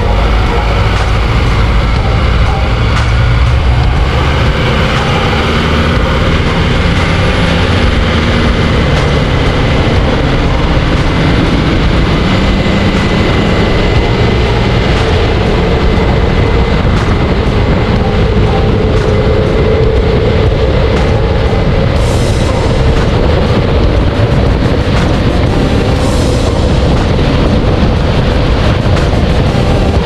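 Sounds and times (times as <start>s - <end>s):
tyres roaring on road: 0.0s - 30.0s
wind rushing past: 0.0s - 30.0s.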